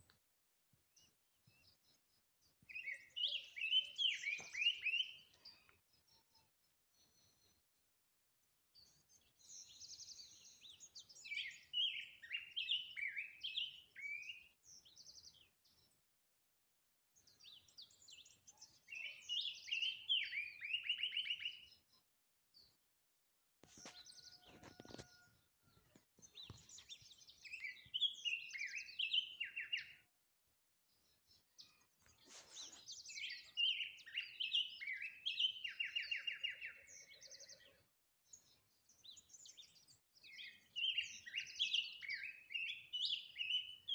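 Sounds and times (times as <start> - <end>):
bird singing warbled trills: 26.3 - 30.1, 38.4 - 43.9.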